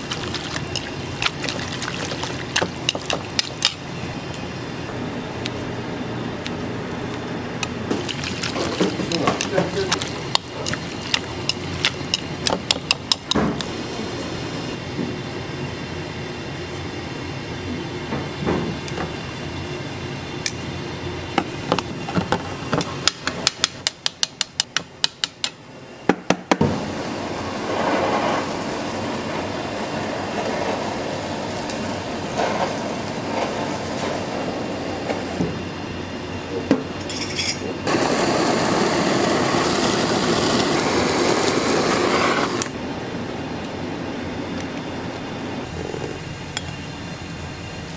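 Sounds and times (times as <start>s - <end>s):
kitchen background noise: 6.4s - 14.5s, 36.5s - 38.2s
kitchen blowtorch hissing: 26.6s - 35.5s, 37.8s - 42.8s.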